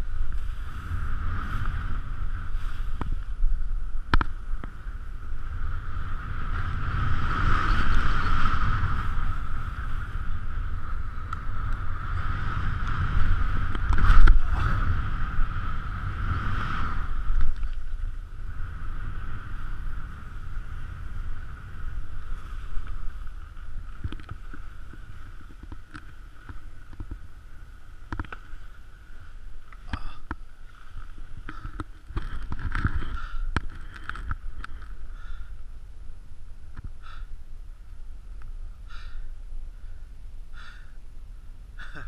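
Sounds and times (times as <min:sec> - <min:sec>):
skis scraping and clicking: 0:00.0 - 0:03.4, 0:06.4 - 0:15.0, 0:19.3 - 0:35.1
wind on microphone: 0:00.0 - 0:42.0
skis hissing on snow: 0:02.5 - 0:03.0.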